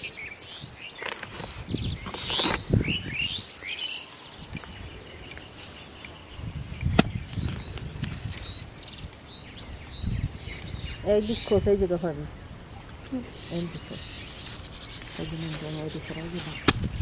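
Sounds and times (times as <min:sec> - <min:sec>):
small birds chirping: 0:00.0 - 0:17.0
hoe chopping into soil: 0:06.8 - 0:07.5, 0:16.4 - 0:17.0
sharp knock: 0:16.6 - 0:16.9.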